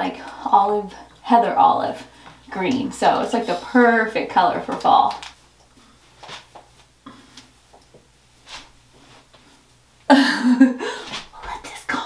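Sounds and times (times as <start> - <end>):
woman speaking: 0.0 - 5.2, 11.3 - 12.0
curling iron clicks and hair rustles: 2.5 - 3.4, 4.3 - 5.7.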